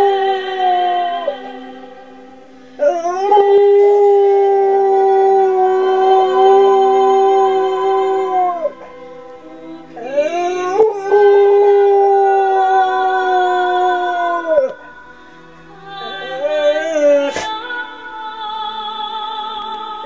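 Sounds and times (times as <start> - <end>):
dog howling: 0.0 - 1.5, 2.8 - 14.9, 16.0 - 17.6
recorded singing: 0.0 - 20.0.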